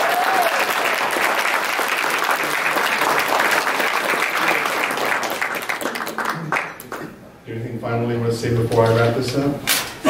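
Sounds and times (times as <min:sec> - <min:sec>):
crowd applauding: 0:00.0 - 0:07.1.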